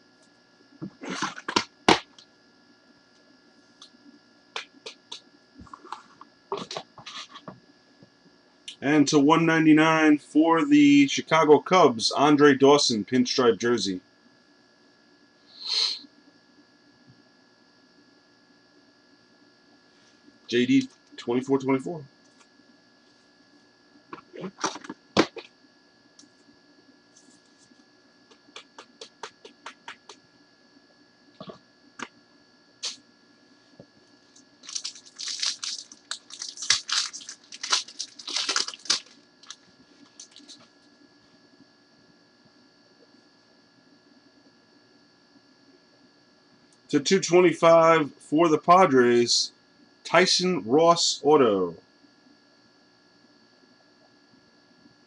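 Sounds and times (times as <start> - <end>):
rustling of card packaging: 34.6 - 40.6.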